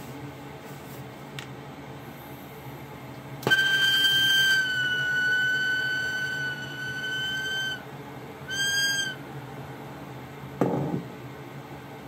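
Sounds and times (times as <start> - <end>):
high whistling tone: 3.5 - 7.9, 8.5 - 9.2.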